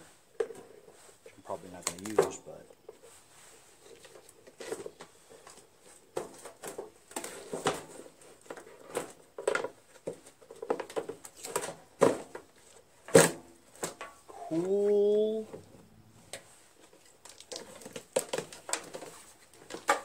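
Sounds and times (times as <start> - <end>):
hands handling wiring and plastic box: 1.6 - 3.0, 16.3 - 20.0.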